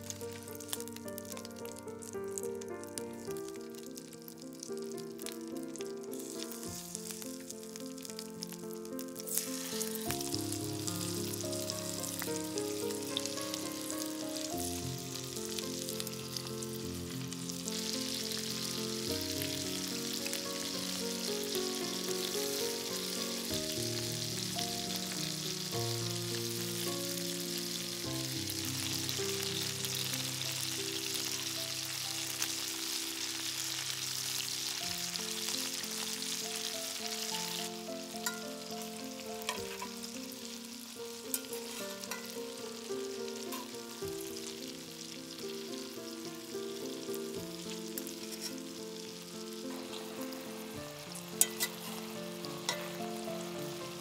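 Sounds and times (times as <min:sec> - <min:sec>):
melodic background music: 0:00.0 - 0:31.4
chicken wings sizzling in oil: 0:00.0 - 0:54.0.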